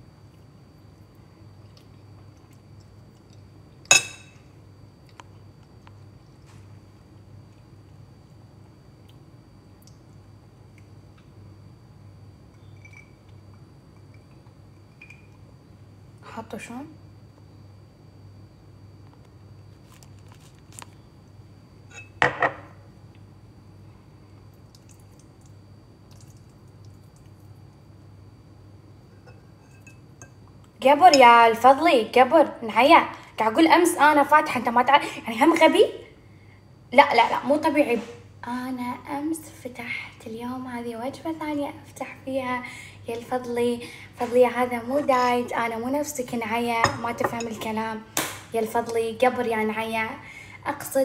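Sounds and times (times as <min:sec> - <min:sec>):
low room hum: 0:00.0 - 0:51.0
fork clinking in bowl: 0:03.9 - 0:04.4, 0:29.2 - 0:30.4
glass set down on counter: 0:21.9 - 0:22.8.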